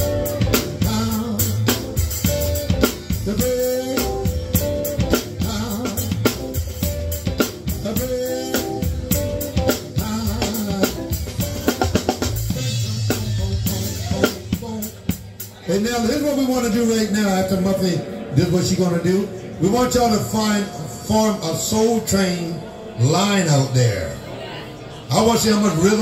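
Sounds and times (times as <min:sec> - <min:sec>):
drum kit beat: 0:00.0 - 0:16.9
live band playing: 0:00.0 - 0:26.0.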